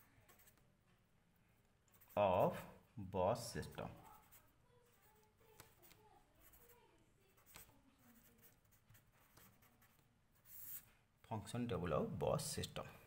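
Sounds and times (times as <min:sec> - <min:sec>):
marker scratching on paper: 0:00.0 - 0:00.7, 0:01.8 - 0:02.8, 0:03.4 - 0:11.0.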